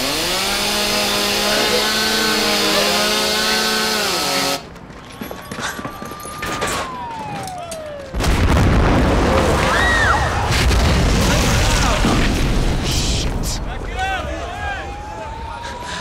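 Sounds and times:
power saw cutting metal: 0.0 - 4.7.

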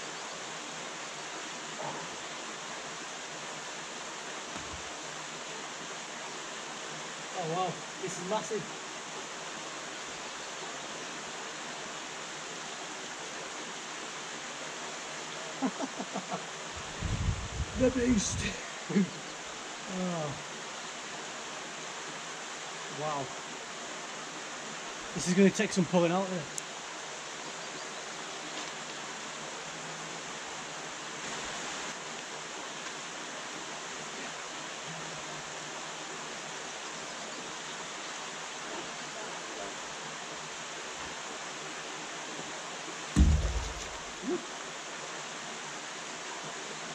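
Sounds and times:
water rushing over a weir: 43.0 - 44.9.

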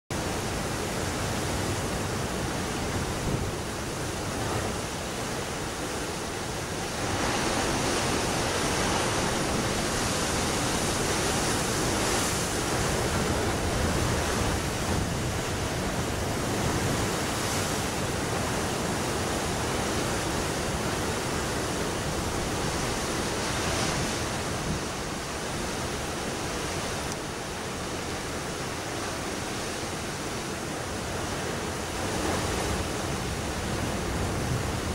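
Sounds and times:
surf washing against rocks: 0.1 - 34.9.

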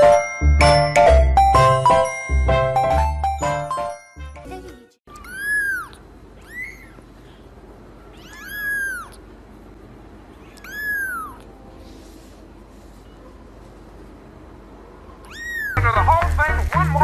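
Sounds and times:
kitten mewing: 5.1 - 7.2, 8.0 - 9.3, 10.4 - 11.6, 15.2 - 15.8.

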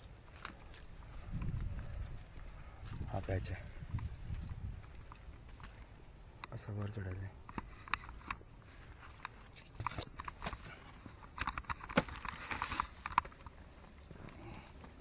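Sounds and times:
dry grass rustling: 0.0 - 6.4
hands and shoes scraping rock: 7.6 - 15.0.

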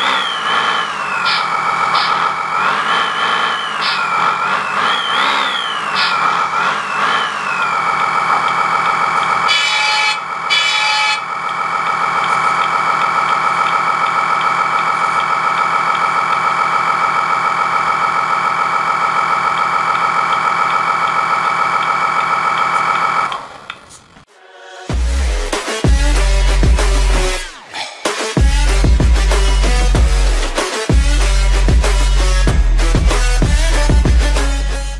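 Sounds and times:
simulated truck engine revving: 0.0 - 23.9, 24.9 - 34.9
short horn blasts: 9.5 - 11.3.

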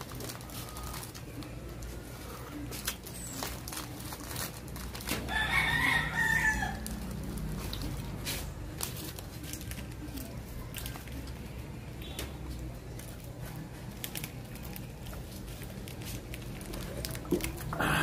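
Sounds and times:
rooster crowing: 5.2 - 7.0.

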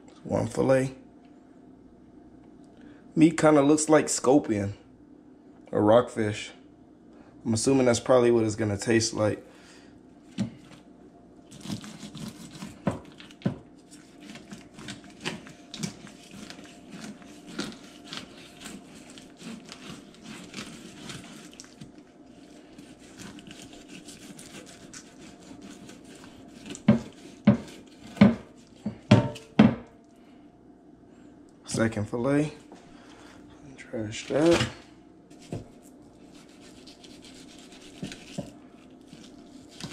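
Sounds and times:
knife scraping fish: 11.5 - 29.0, 35.3 - 39.9
knife knocking on wooden board: 26.9 - 28.4, 29.1 - 29.9.

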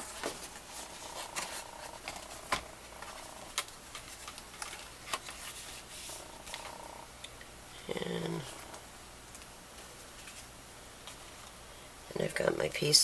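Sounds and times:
paper rustling: 0.0 - 6.8, 10.0 - 10.5.

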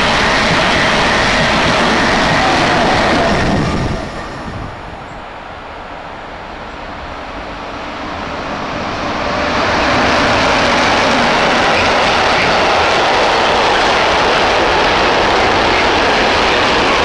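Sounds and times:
freight train wheels rumbling on rails: 0.0 - 17.0
passing train running noise: 0.0 - 17.0.

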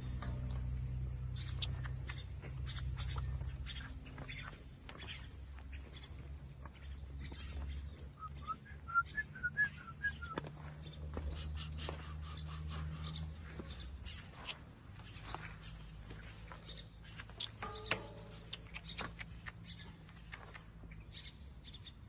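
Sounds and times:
steady low rumble: 0.0 - 21.5.

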